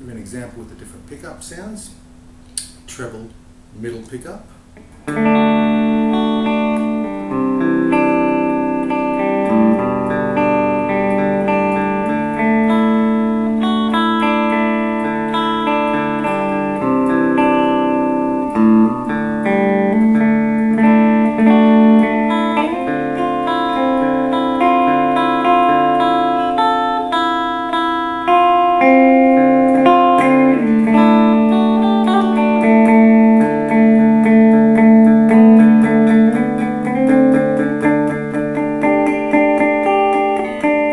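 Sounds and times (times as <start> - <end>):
clean electric guitar: 0.0 - 40.9.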